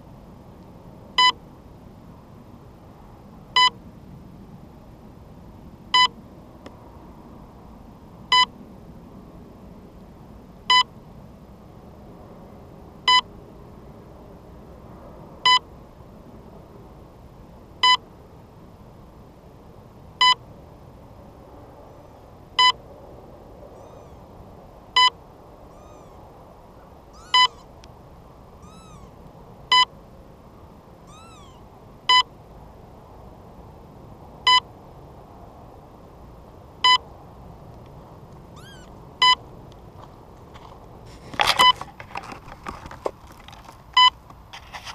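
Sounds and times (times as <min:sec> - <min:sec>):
faint bird chirps: 0:23.8 - 0:24.2, 0:25.7 - 0:27.8, 0:28.6 - 0:29.2, 0:31.1 - 0:31.6, 0:38.6 - 0:38.9
short loud electronic beeps: 0:27.2 - 0:27.6
camera handling rustling and knocking: 0:40.6 - 0:43.8.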